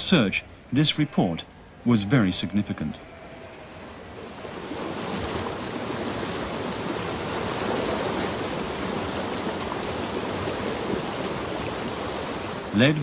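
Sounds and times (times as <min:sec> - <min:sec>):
river water rushing: 0:03.0 - 0:13.0.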